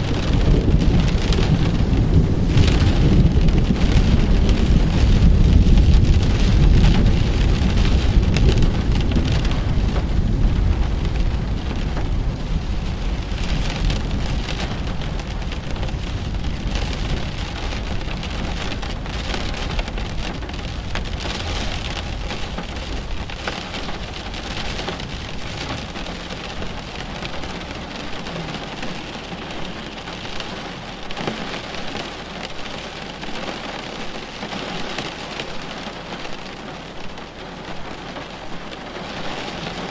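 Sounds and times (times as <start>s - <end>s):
steady rain: 0.0s - 39.9s
thunder rumbling: 0.0s - 39.9s.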